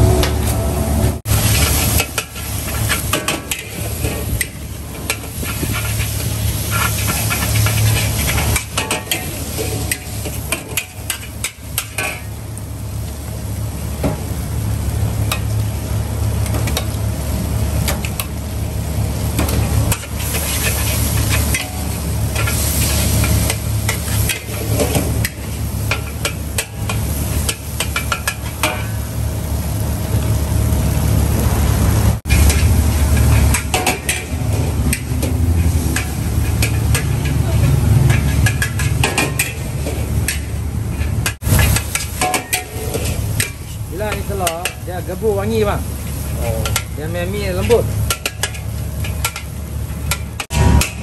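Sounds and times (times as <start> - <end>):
metal spatula scraping wok: 0.0 - 12.3, 19.9 - 29.0, 32.3 - 45.4
noodles sizzling: 0.0 - 51.0
steady low rumble: 29.0 - 42.0.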